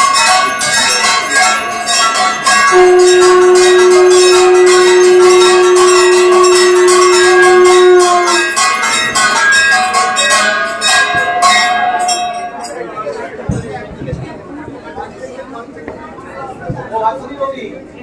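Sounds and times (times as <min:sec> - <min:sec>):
bells ringing rapidly: 0:00.0 - 0:13.4
loud steady note: 0:02.4 - 0:09.2, 0:10.9 - 0:12.7.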